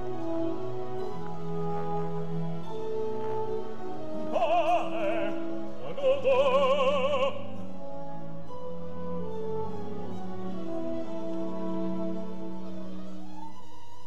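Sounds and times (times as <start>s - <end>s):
orchestral chords: 0.0s - 12.9s
opera singer singing: 4.0s - 8.0s.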